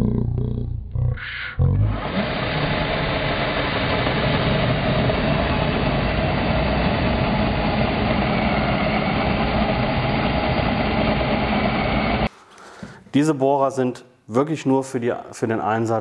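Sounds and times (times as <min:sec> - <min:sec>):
cordless drill boring into wood: 0:02.0 - 0:11.4.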